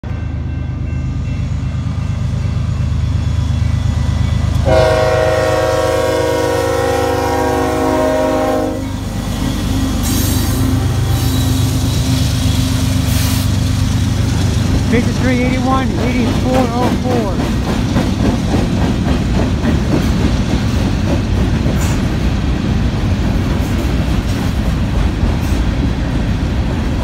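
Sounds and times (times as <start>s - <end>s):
freight train rumbling: 0.0s - 27.0s
locomotive horn blast: 4.6s - 12.1s.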